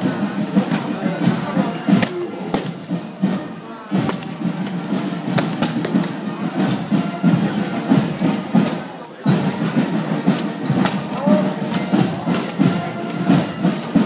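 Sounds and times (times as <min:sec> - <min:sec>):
crowd chatter: 0:00.0 - 0:14.0
music: 0:00.0 - 0:14.0
sharp knocks and cracks: 0:10.8 - 0:11.1.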